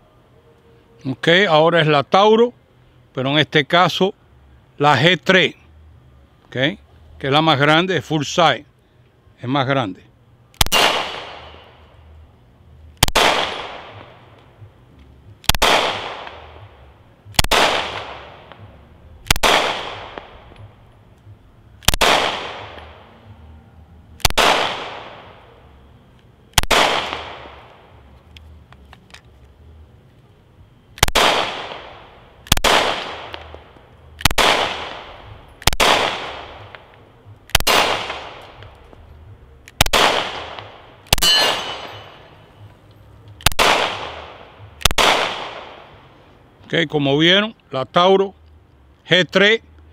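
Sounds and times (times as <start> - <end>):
pistol shots: 10.6 - 11.9, 13.0 - 14.3, 15.4 - 16.7, 17.3 - 20.7, 21.8 - 23.2, 24.2 - 25.4, 26.5 - 27.9, 31.0 - 38.8, 39.6 - 42.4, 43.4 - 46.0.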